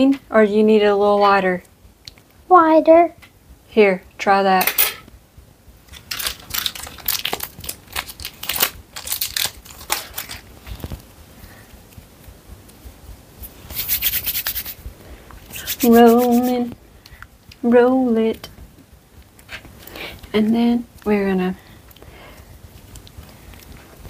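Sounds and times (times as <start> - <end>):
hands rubbing clay: 13.4 - 14.8, 15.4 - 16.7.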